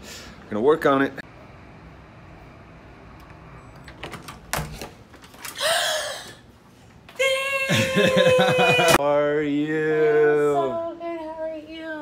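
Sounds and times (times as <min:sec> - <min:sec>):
woman screaming excitedly: 0:07.2 - 0:09.0.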